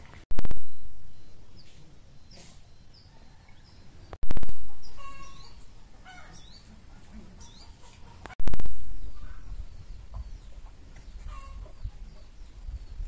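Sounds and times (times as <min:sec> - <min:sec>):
small birds chirping: 0:00.6 - 0:13.0
chicken clucking: 0:04.7 - 0:08.4, 0:10.1 - 0:12.3.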